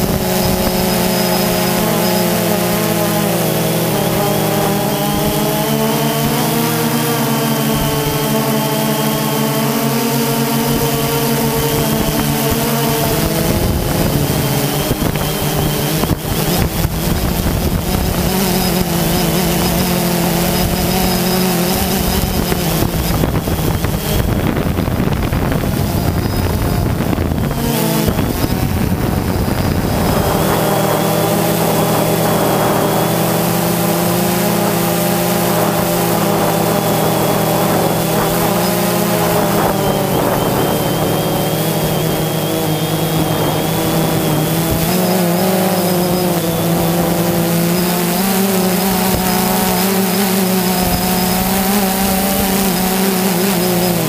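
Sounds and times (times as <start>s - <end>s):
drone propellers whining: 0.0s - 54.0s
rush of noise: 0.0s - 54.0s.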